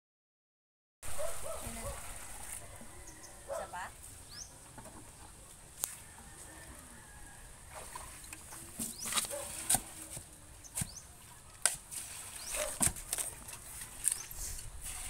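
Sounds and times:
shovel scraping sand and cement: 8.8 - 11.0.

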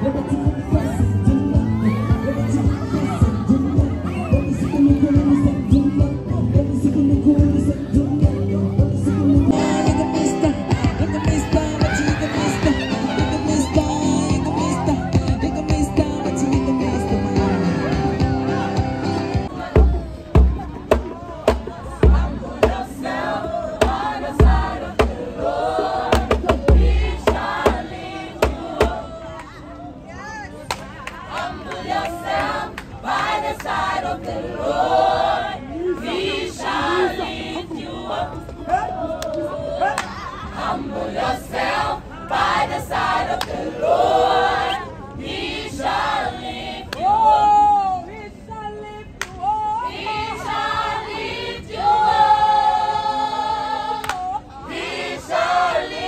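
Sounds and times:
choir singing in harmony: 9.5 - 15.2, 16.0 - 29.4, 31.3 - 39.9, 40.5 - 47.4, 49.8 - 56.0
sharp rhythmic hits: 23.8 - 25.2, 26.1 - 29.0.

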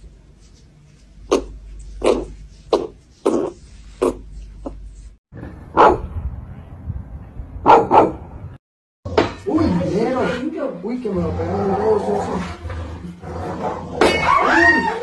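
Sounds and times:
puppy barking: 5.8 - 6.1, 7.6 - 8.2.

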